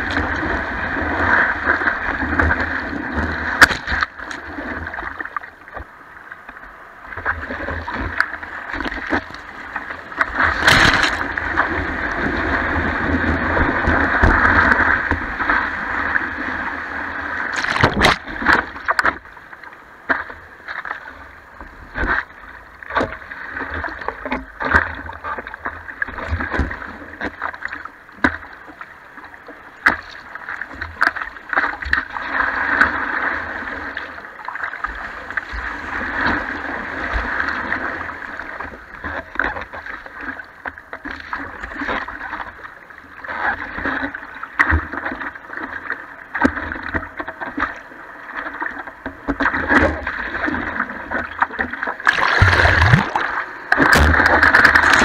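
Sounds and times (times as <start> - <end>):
water slapping a surfboard: 0.0 - 55.0
whitewater washing over board: 7.6 - 16.6, 49.4 - 55.0.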